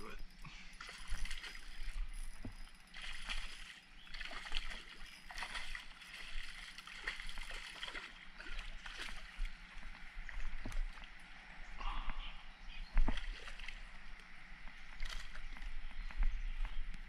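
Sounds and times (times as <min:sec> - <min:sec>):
water sloshing: 0:00.0 - 0:15.9
fish splashing at surface: 0:03.0 - 0:09.4.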